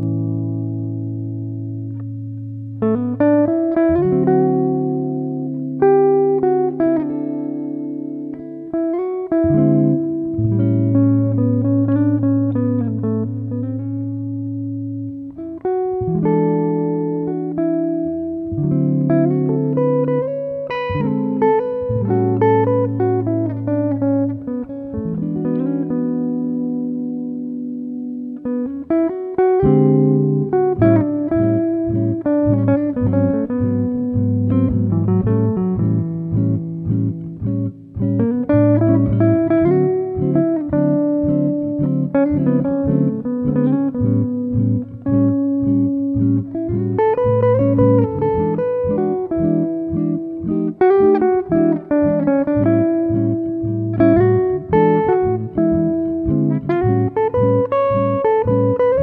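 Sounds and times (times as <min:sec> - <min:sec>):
plucked guitar music: 0:00.0 - 0:59.0.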